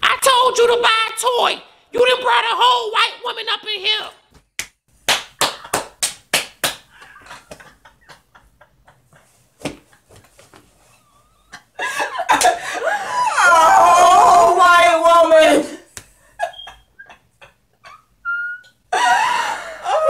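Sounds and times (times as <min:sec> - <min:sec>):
hands clapping: 0:04.3 - 0:07.8, 0:12.3 - 0:12.6, 0:15.9 - 0:16.1
women shrieking with laughter: 0:12.6 - 0:14.7, 0:18.2 - 0:20.0.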